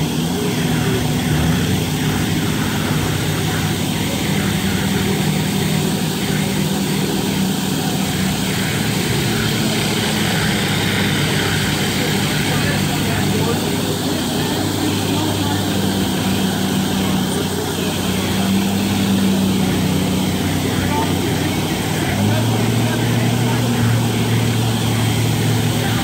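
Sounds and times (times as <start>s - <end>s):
concrete floor grinder: 0.0s - 26.0s
dust extractor sucking: 0.0s - 26.0s.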